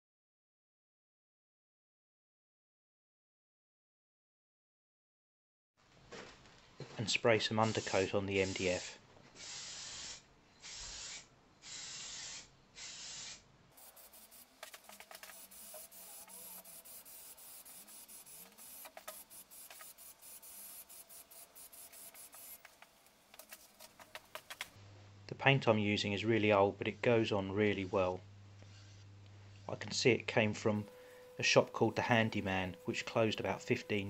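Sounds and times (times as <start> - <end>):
aerosol spray can hissing: 7.6 - 22.8, 23.4 - 24.7.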